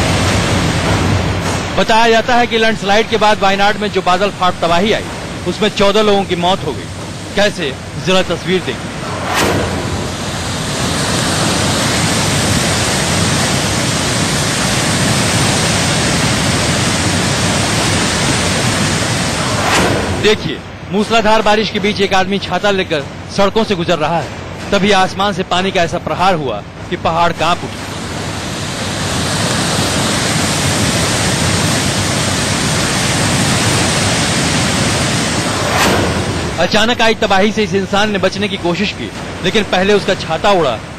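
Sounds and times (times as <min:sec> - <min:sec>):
water rushing: 0:00.0 - 0:40.9
torrential downpour: 0:09.9 - 0:40.9.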